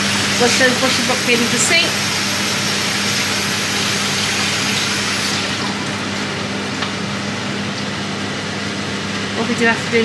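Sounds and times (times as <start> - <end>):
tap water running into sink: 0.0 - 7.0
extractor fan humming: 0.0 - 10.0.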